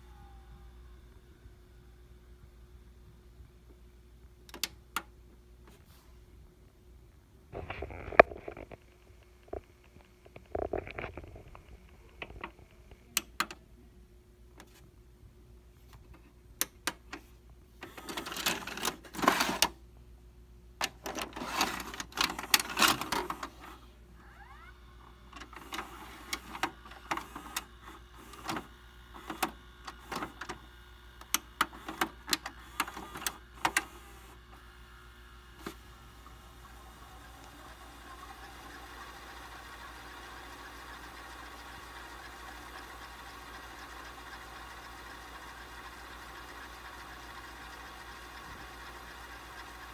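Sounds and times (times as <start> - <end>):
clicks: 4.4 - 5.1
tape mechanism whirring and clicking: 4.5 - 5.1, 15.9 - 19.8, 20.8 - 49.9
cassette scraping into slot: 17.8 - 19.8, 20.8 - 23.7.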